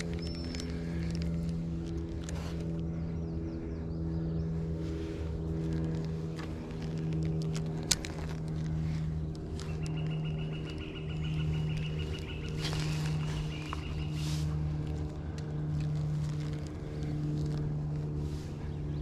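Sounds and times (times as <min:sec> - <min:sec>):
low engine hum: 0:00.0 - 0:19.0.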